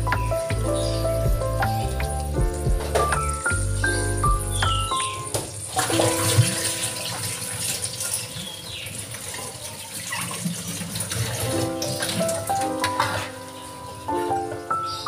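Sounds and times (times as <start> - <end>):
water pouring into a pan: 5.5 - 14.1.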